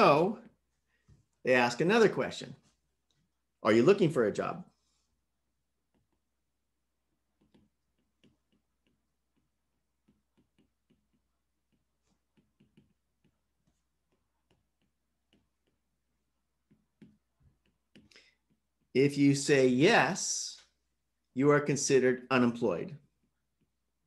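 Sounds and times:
stylus tapping on glass screen: 7.3 - 15.9.

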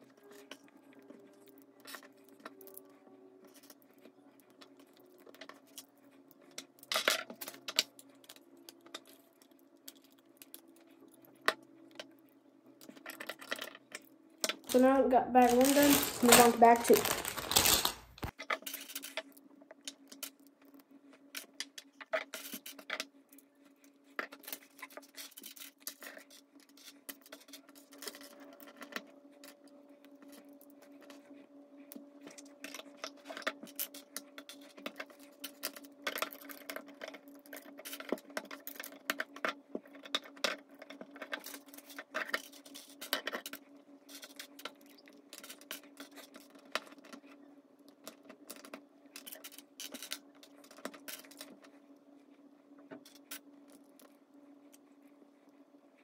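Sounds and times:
plastic bricks clicking and rattling: 15.4 - 19.3
steady low hum: 26.2 - 56.0.

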